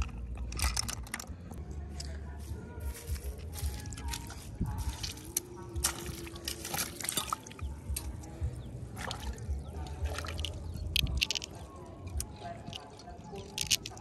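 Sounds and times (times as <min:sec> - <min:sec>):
small clicks and knocks: 0:00.0 - 0:02.1, 0:10.4 - 0:14.0
seawater splashing and dripping: 0:04.0 - 0:14.0.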